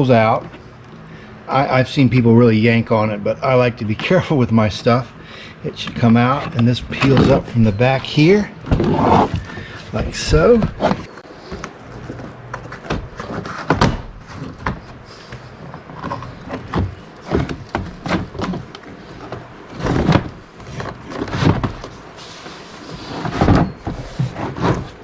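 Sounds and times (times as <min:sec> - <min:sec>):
knocks and thumps: 0:16.0 - 0:18.7.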